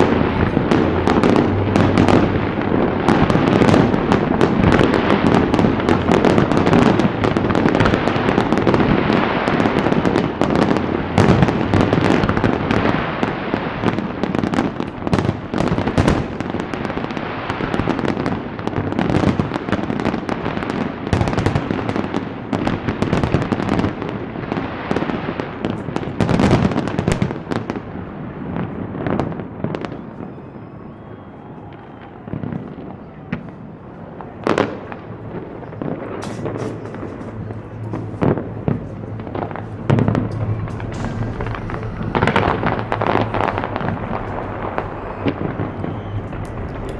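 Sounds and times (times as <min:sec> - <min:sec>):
fireworks shells bursting: 0:36.1 - 0:46.9.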